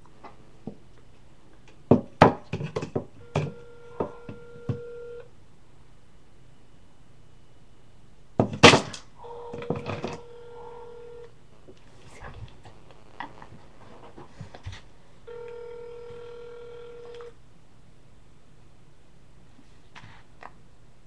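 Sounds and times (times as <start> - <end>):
phone ringback tone: 3.2 - 5.3, 9.2 - 11.3, 15.3 - 17.3.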